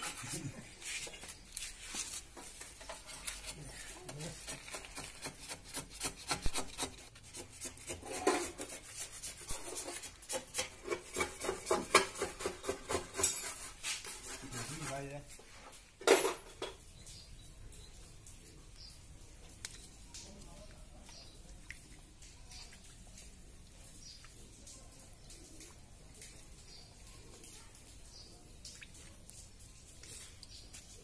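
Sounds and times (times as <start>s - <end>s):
hand sanding plastic panels: 3.0s - 15.0s.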